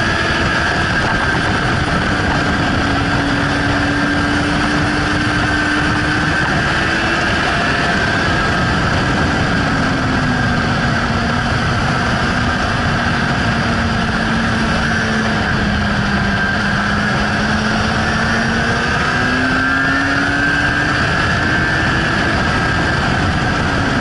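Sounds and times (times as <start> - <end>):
motorcycle engine running: 0.0 - 24.0
wind rushing: 0.0 - 24.0.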